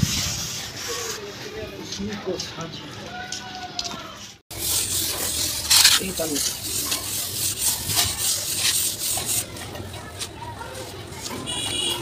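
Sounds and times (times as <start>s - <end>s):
trowel scraping wet plaster: 4.5s - 11.6s.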